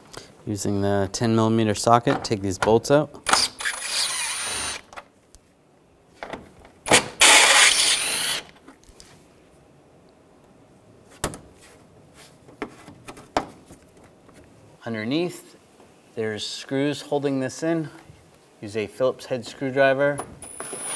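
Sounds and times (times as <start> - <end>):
impact driver hammering bolts: 6.2 - 8.5.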